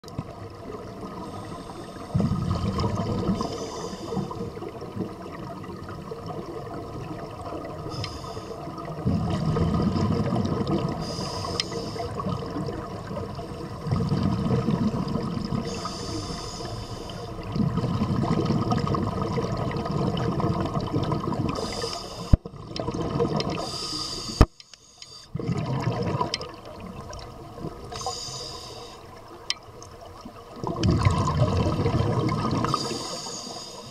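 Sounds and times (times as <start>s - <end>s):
exhaled bubbles rumbling: 0.0s - 23.7s, 25.3s - 28.2s, 29.0s - 33.2s
regulator inhale hiss: 1.2s - 2.2s, 3.3s - 4.6s, 7.8s - 8.8s, 11.0s - 12.3s, 15.6s - 17.4s, 21.6s - 22.4s, 23.6s - 25.4s, 27.8s - 29.2s, 32.6s - 33.9s.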